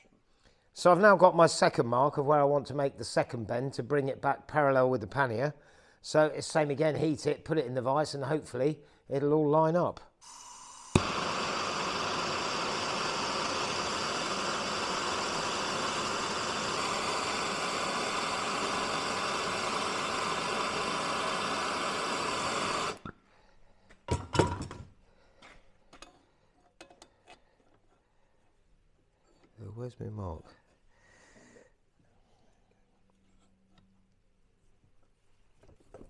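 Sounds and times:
blowtorch flame hissing: 10.2s - 23.1s
blowtorch ignition click: 10.2s - 23.1s.

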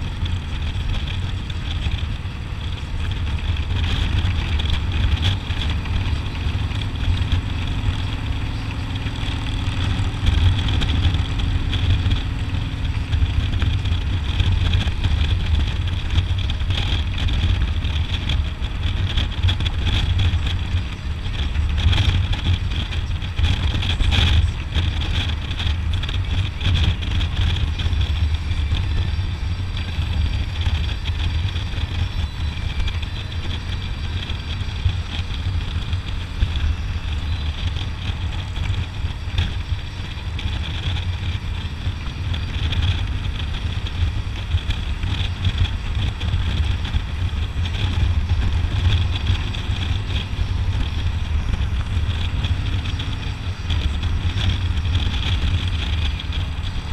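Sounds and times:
motorcycle engine running: 0.0s - 56.9s
wind on microphone: 0.0s - 56.9s.

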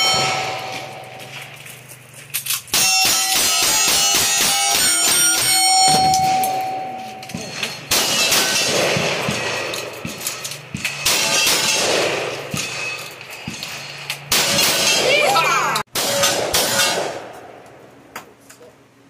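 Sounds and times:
steel target ringing: 0.0s - 1.5s, 2.7s - 15.4s
shotgun shots: 2.7s - 6.6s, 7.2s - 13.6s, 14.2s - 15.3s, 15.9s - 17.6s
rifle shots: 2.7s - 15.3s, 15.9s - 17.6s.

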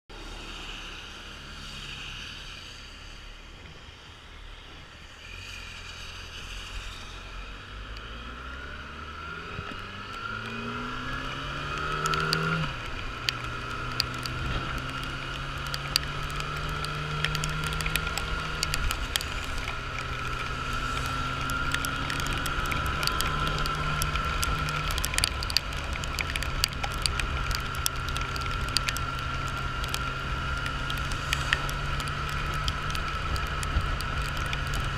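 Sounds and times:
wind: 0.0s - 34.9s
wet road noise: 0.1s - 34.9s
motorcycle engine: 8.5s - 34.9s
rain ticking on camera: 9.0s - 34.9s.

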